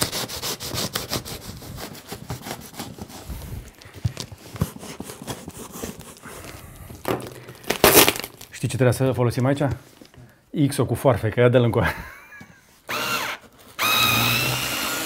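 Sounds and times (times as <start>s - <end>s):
knife sawing cardboard box: 0.0s - 3.6s, 4.4s - 6.5s.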